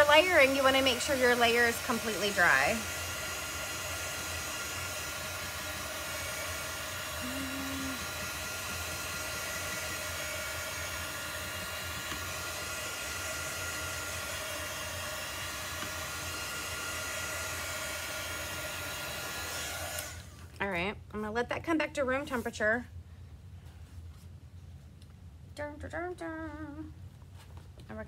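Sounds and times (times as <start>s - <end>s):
heat tool fan whirring: 0.0s - 20.6s.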